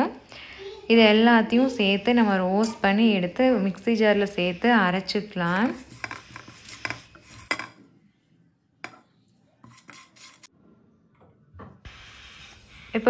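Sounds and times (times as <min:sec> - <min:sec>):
spices scraping in frying pan: 0:02.5 - 0:07.8, 0:09.6 - 0:10.5.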